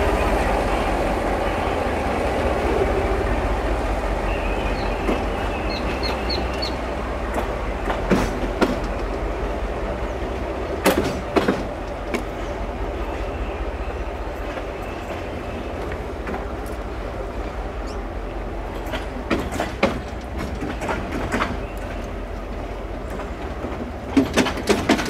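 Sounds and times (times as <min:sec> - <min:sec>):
freight train rumbling: 0:00.0 - 0:25.0
wheels knocking over rail joints: 0:18.7 - 0:22.0, 0:23.1 - 0:25.0.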